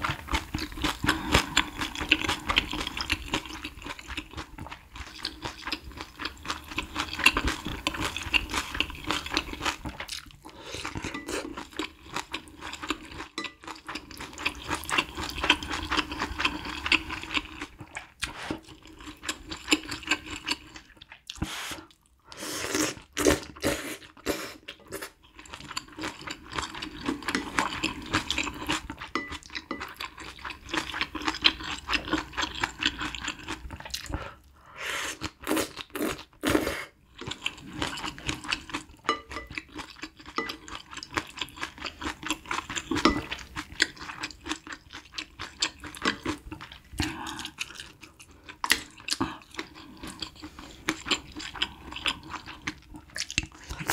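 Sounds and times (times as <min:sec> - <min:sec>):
chewing with smacking clicks: 0:37.2 - 0:53.9.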